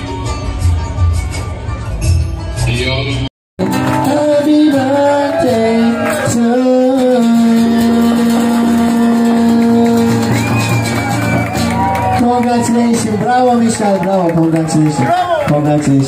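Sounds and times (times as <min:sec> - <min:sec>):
man singing: 0:03.6 - 0:10.6
acoustic guitar: 0:03.6 - 0:14.5.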